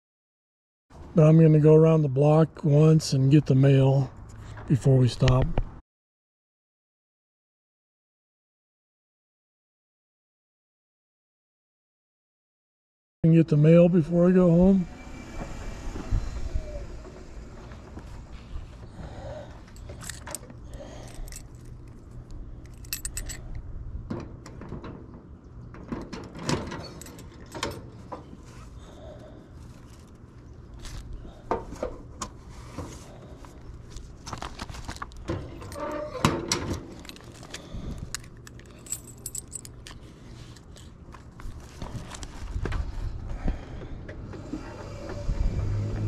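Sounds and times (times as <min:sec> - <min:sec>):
keys jangling: 0:19.7 - 0:23.6, 0:26.6 - 0:27.8, 0:36.8 - 0:40.9.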